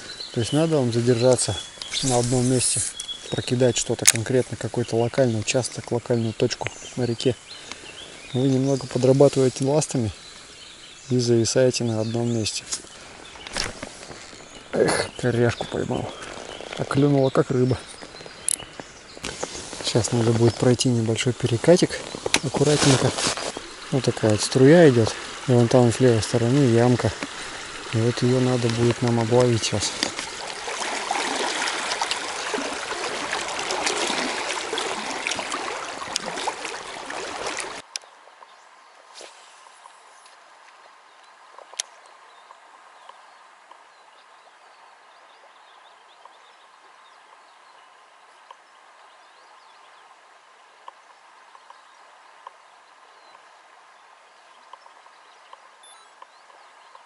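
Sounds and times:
birds chirping: 0.0s - 57.0s
faint quiet water: 0.0s - 57.0s
river rushing and splashing: 12.4s - 37.9s.

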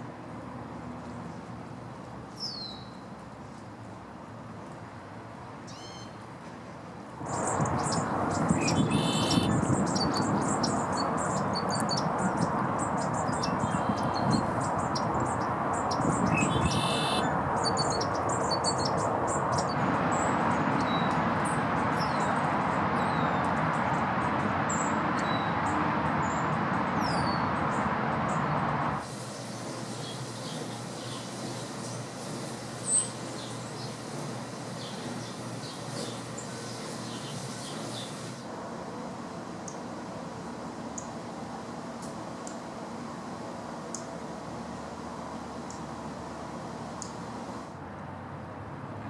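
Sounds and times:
loud rush of background noise: 0.0s - 2.4s, 3.0s - 49.0s
blackbird buzzy song: 2.3s - 3.1s, 5.7s - 6.2s, 7.2s - 24.0s, 29.4s - 38.4s
short high bird chirps: 8.6s - 10.3s, 16.3s - 18.0s
faint thin bird calls: 8.9s - 9.5s, 16.5s - 17.2s.

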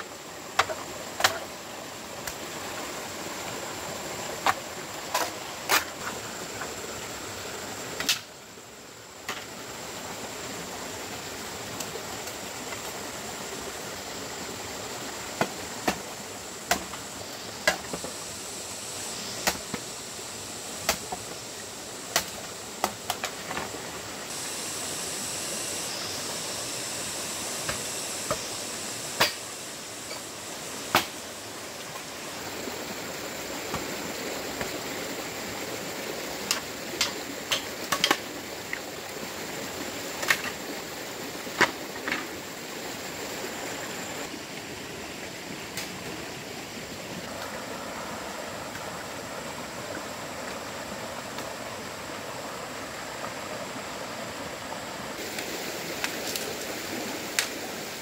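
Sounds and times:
shallow stream rushing: 0.0s - 58.0s
machete chopping bamboo: 16.7s - 17.0s, 20.8s - 21.1s, 29.2s - 29.5s, 30.9s - 31.2s.

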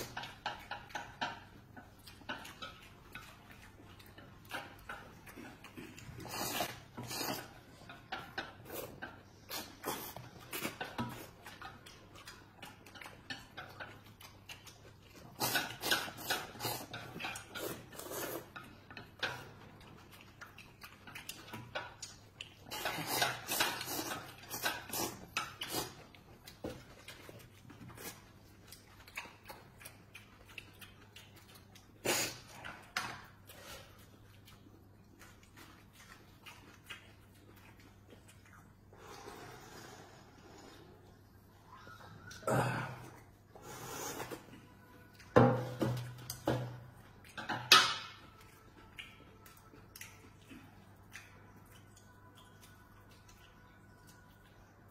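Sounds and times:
people slurping noodles: 38.9s - 41.0s.

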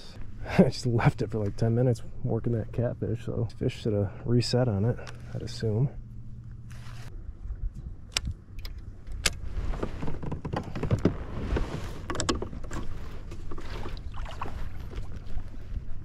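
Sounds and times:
water slapping against hull: 9.8s - 16.0s.

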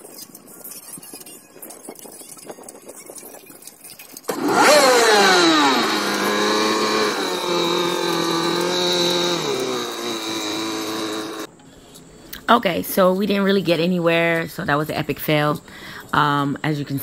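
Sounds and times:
boat engine running: 4.3s - 11.5s.

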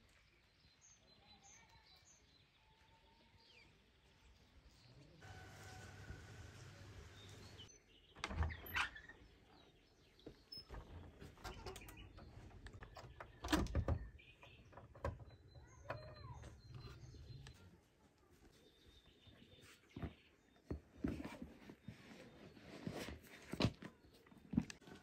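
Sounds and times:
faint birds chirping: 0.0s - 25.0s
door latch rattling: 10.7s - 16.3s.

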